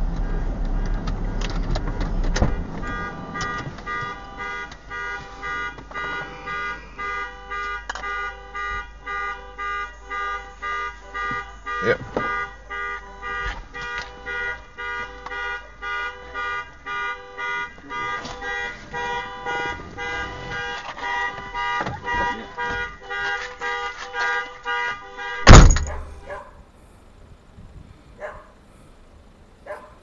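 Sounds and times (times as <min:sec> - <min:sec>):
vehicle warning chime beeping: 0:02.5 - 0:24.3.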